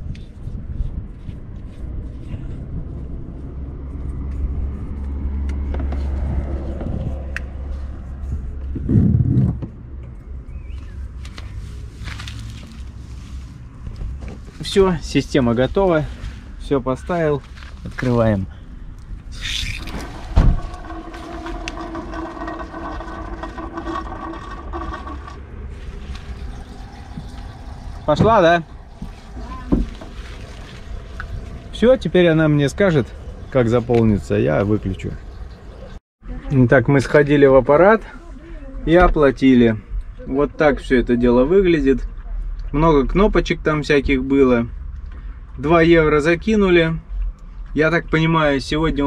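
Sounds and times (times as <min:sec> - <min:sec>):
car passing: 0:01.9 - 0:10.0, 0:18.0 - 0:36.0
water running through hose: 0:19.3 - 0:33.1
loud thump: 0:20.1 - 0:20.8
humming whine: 0:24.5 - 0:34.2.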